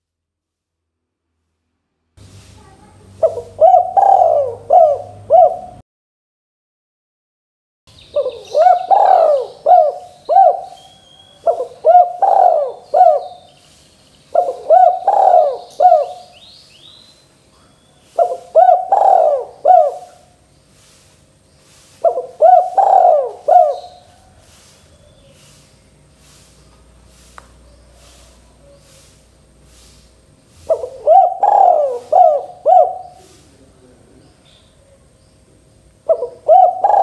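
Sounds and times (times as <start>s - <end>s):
dove cooing: 3.2s - 5.8s, 8.1s - 13.5s, 14.3s - 16.4s, 17.6s - 20.4s, 21.9s - 25.6s, 30.6s - 34.1s, 36.0s - 37.0s.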